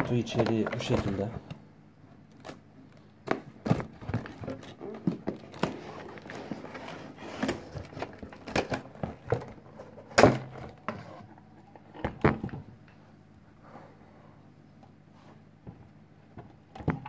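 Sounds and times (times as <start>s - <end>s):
box and metal scraping and knocking: 3.6s - 12.7s.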